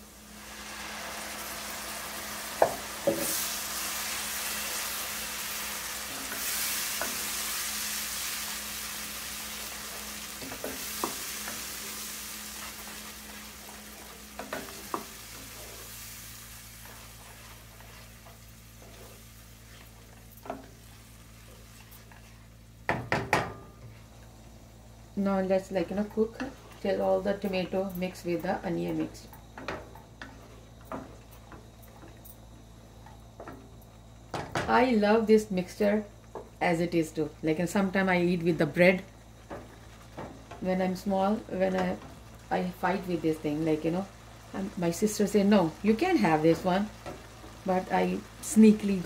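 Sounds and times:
tomato puree sizzling in hot oil: 0:00.0 - 0:49.0
wooden spoon stirring: 0:16.8 - 0:22.5.

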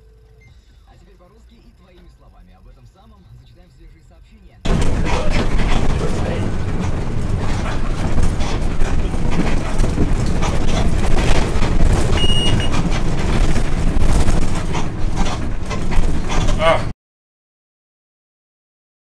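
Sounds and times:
bus engine and road drone: 0:00.0 - 0:16.9
bus body rattling and knocking: 0:04.7 - 0:16.9
short high beep: 0:12.2 - 0:12.7.

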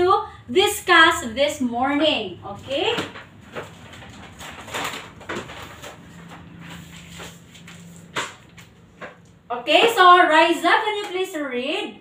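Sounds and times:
faint steady hum: 0:00.0 - 0:12.0
paper rustling and crinkling: 0:02.8 - 0:09.2.

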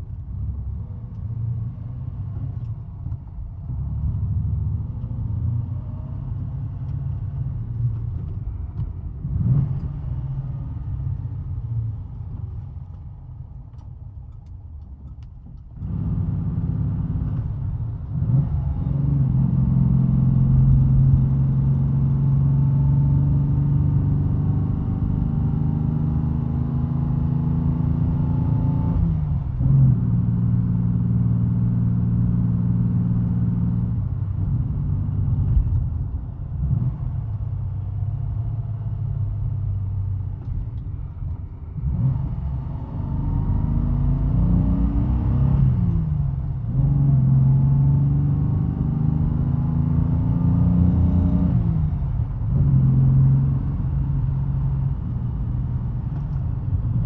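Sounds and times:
car engine accelerating: 0:15.5 - 0:57.0.

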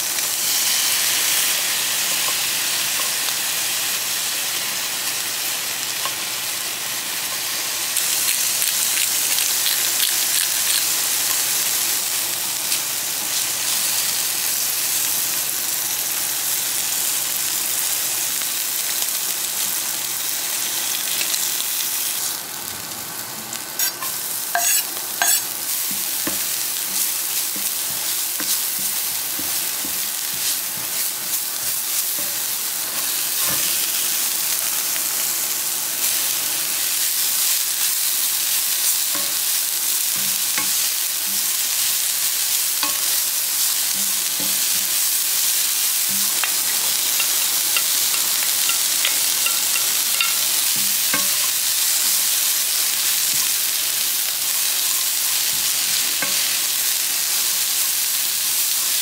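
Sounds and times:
vegetables sizzling in oil: 0:00.0 - 0:59.0
spatula scraping and tapping pan: 0:23.8 - 0:32.4, 0:42.8 - 0:43.2, 0:46.0 - 0:51.6.

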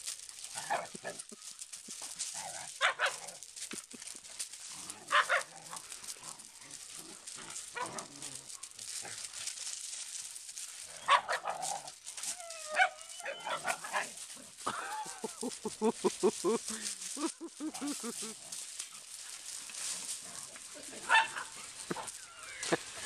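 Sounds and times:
puppies barking and yipping: 0:00.0 - 0:23.0
puppies yelping: 0:10.8 - 0:19.2, 0:21.0 - 0:23.0.

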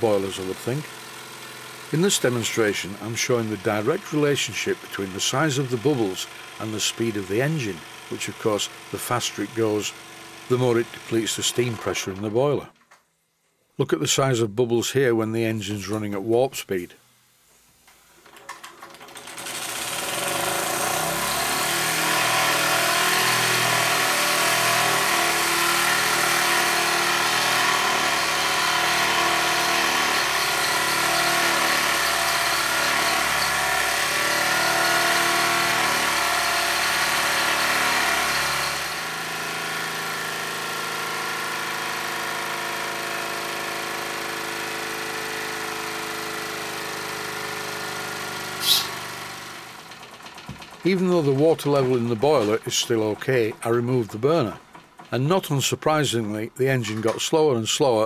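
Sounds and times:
model steam engine beat: 0:48.3 - 0:55.6
steam hissing: 0:48.6 - 0:49.1.

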